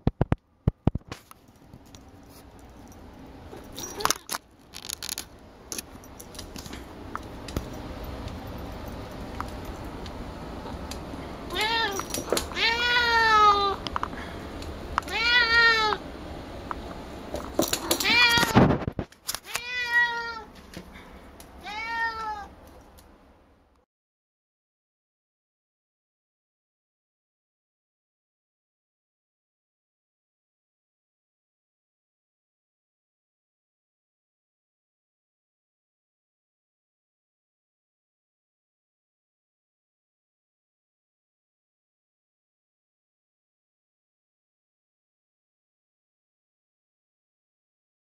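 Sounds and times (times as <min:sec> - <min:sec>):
cat meowing: 0:11.5 - 0:13.8, 0:15.0 - 0:16.0, 0:17.8 - 0:18.7, 0:19.4 - 0:20.5, 0:21.6 - 0:22.5.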